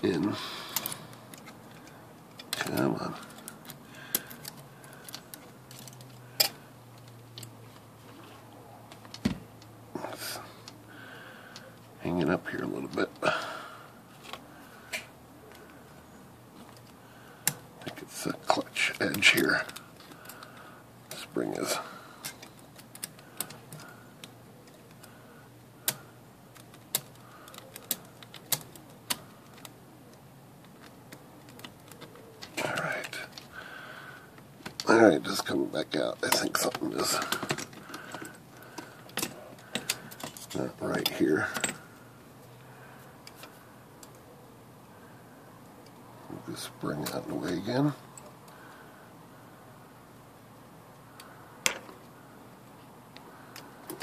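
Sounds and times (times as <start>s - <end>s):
typewriter parts clicking: 22.2s - 25.1s, 25.8s - 29.8s, 30.6s - 33.5s.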